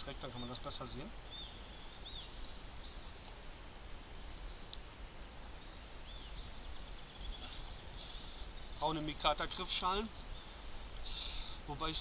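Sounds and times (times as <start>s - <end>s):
low hiss and rumble: 0.0s - 12.0s
faint click: 4.3s - 4.9s.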